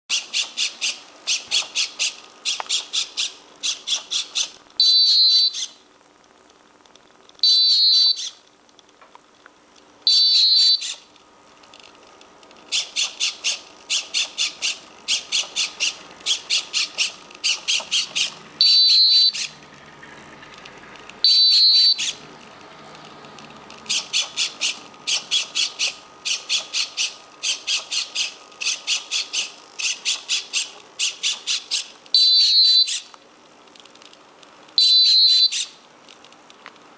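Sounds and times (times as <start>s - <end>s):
piezo buzzer chirping: 4.8s - 5.7s, 7.4s - 8.4s, 10.1s - 11.0s, 16.4s - 19.5s, 21.2s - 22.2s, 32.2s - 33.1s, 34.8s - 35.7s.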